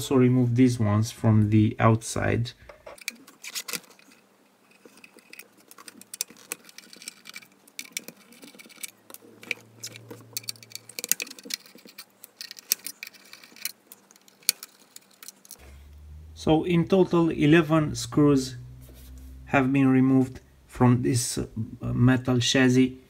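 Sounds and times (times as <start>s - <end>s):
screwdriver clicking on metal screws: 3.0s - 15.6s.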